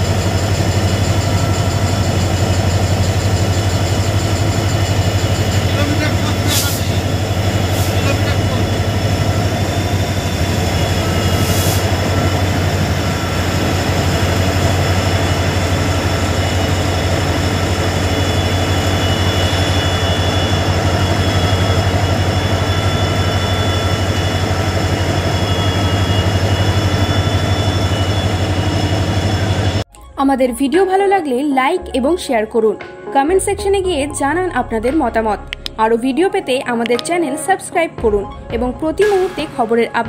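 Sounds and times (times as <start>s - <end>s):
locomotive engine hum: 0.0s - 30.6s.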